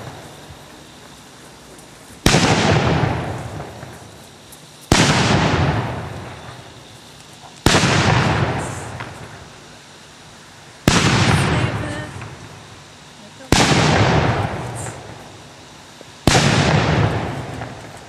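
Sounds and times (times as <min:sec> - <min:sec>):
gunshots with rolling echo: 0:04.9 - 0:06.2, 0:13.5 - 0:14.9, 0:16.3 - 0:17.8.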